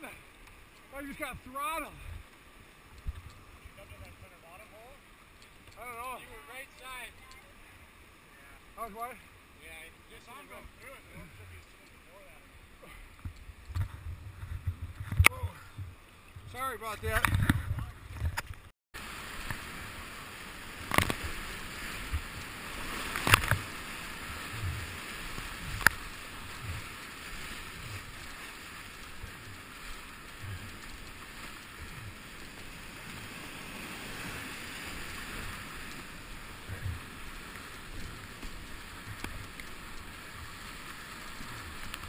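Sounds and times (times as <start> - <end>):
whitewater rushing: 19.0 - 42.0
low thumps: 25.6 - 27.0.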